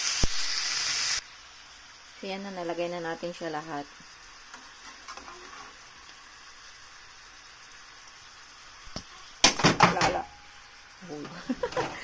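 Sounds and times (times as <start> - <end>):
chicken sizzling in a pan: 0.0 - 12.0
metal spatula scraping a pan: 4.5 - 5.9.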